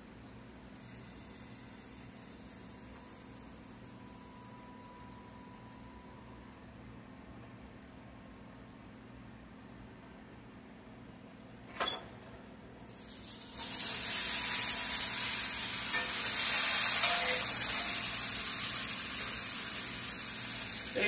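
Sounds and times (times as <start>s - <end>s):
potatoes sizzling in a skillet: 12.8s - 21.0s.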